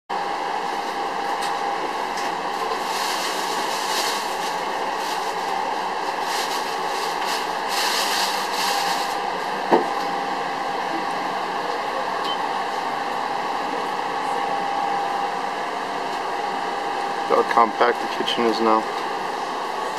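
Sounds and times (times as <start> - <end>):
kitchen equipment drone: 0.1 - 19.9.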